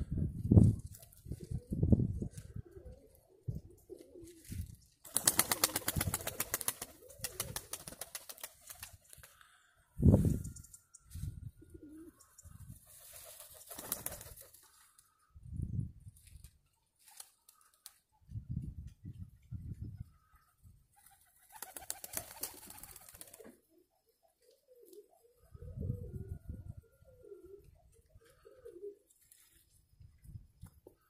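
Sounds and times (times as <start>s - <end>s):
wing beats: 5.0s - 15.1s
pigeons cooing: 5.2s - 8.0s, 11.6s - 13.2s, 21.5s - 29.1s.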